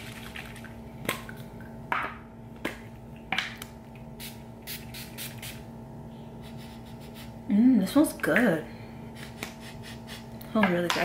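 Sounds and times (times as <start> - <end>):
mist spray bottle spritzing: 4.2 - 5.6.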